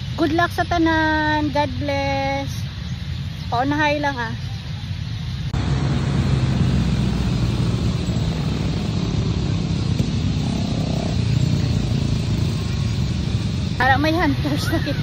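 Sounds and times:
steady low rumbling: 0:05.1 - 0:14.6.

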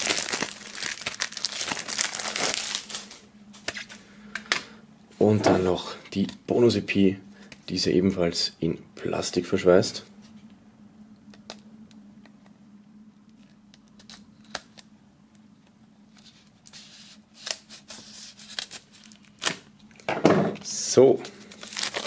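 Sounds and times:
faint low hum: 0:00.0 - 0:22.0
knife cutting plastic wrap: 0:21.5 - 0:22.0.

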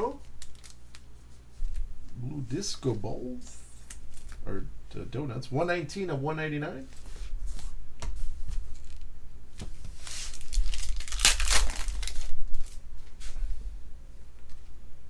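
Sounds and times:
foil pack tearing and crinkling: 0:00.1 - 0:01.0, 0:10.0 - 0:12.8.

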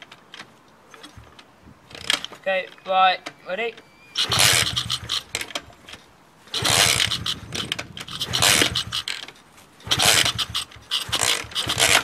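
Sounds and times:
small engine cranking chuffing: 0:04.1 - 0:12.0
kick-start mechanism clatter: 0:04.2 - 0:12.0.

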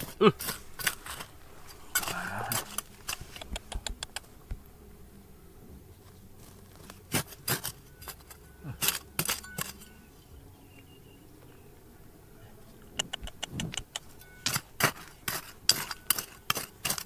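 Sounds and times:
hard objects clinking: 0:00.0 - 0:03.2, 0:07.1 - 0:10.0, 0:14.1 - 0:17.0.

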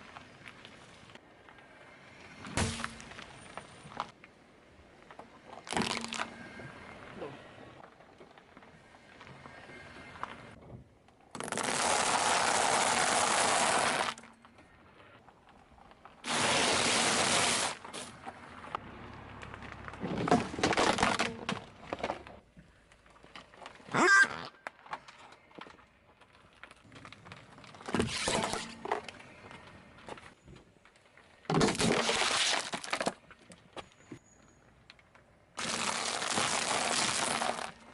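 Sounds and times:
car tyre crushing objects: 0:02.3 - 0:04.2, 0:05.0 - 0:06.7, 0:11.2 - 0:14.6, 0:15.2 - 0:23.9, 0:24.6 - 0:34.1, 0:34.8 - 0:37.9.

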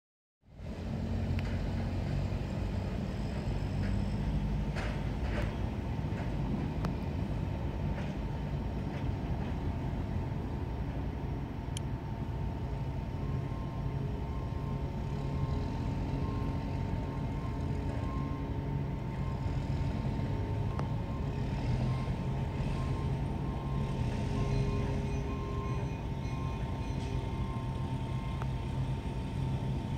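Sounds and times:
low engine rumble: 0:00.4 - 0:29.9
faint steady whine: 0:06.8 - 0:29.9
faint pulsing tone: 0:11.2 - 0:29.9.

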